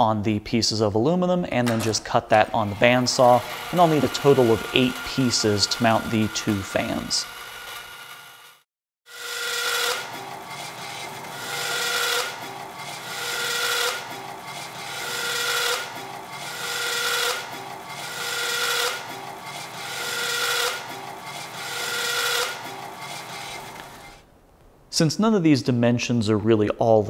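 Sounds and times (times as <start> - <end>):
bandsaw cutting metal: 1.7 - 24.2.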